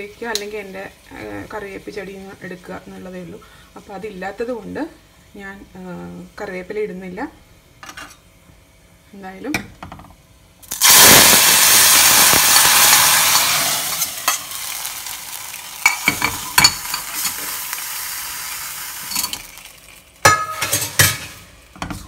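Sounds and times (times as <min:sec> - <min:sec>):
hot oil sizzling: 0:00.0 - 0:07.2, 0:09.2 - 0:22.0
steel ladle scraping pan: 0:20.3 - 0:22.0.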